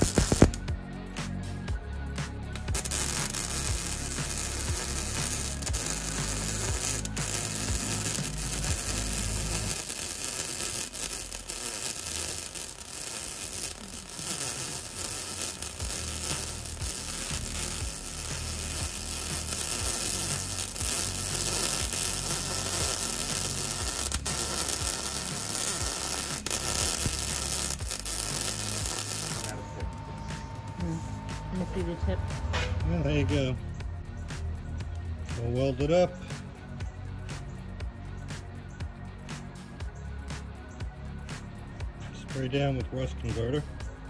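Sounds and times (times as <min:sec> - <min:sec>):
welding arc crackling: 0:00.0 - 0:00.6, 0:02.6 - 0:29.6.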